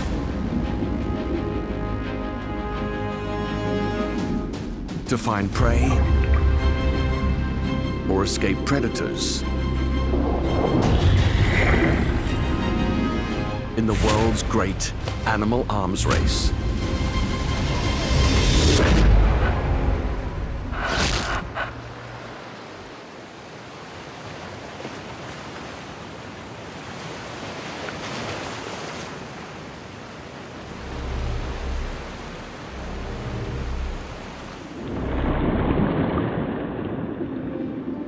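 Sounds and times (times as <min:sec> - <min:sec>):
ocean surf washing in: 0:00.0 - 0:05.9, 0:08.0 - 0:38.0
muffled underwater water rush: 0:05.7 - 0:07.6, 0:09.4 - 0:14.7, 0:28.1 - 0:38.0
sharp splash: 0:34.5 - 0:37.6.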